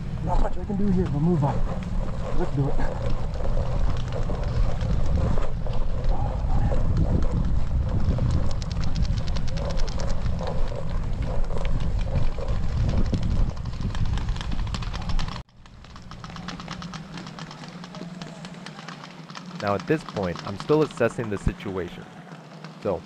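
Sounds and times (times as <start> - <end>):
wind rumbling on microphone: 0.0 - 15.5.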